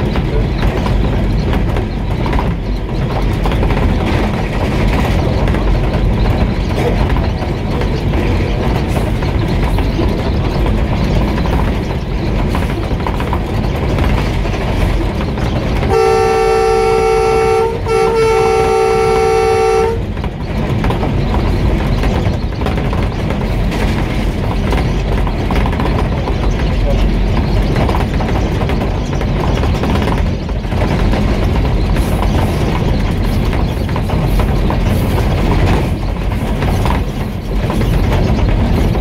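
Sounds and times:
diesel locomotive running: 0.0 - 39.0
locomotive horn chord: 15.9 - 20.1.

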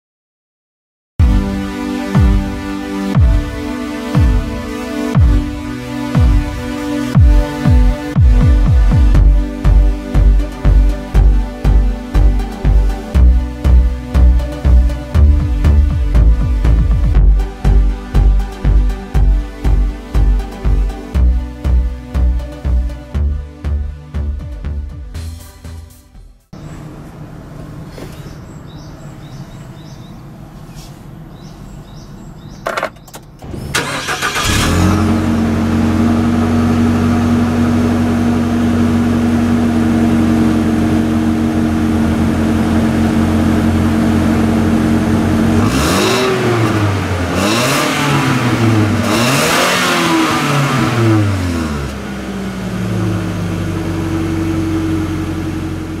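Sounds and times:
car engine starting and idling: 1.2 - 23.1, 26.5 - 56.0
engine revving: 1.2 - 23.1, 33.4 - 56.0.

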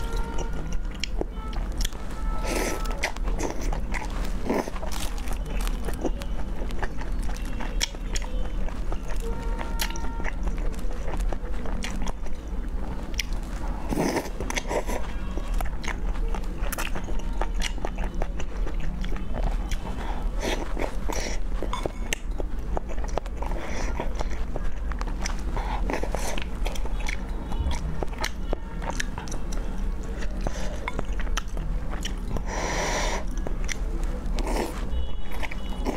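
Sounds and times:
person chewing food: 0.0 - 35.9
person slurping: 32.4 - 33.4.

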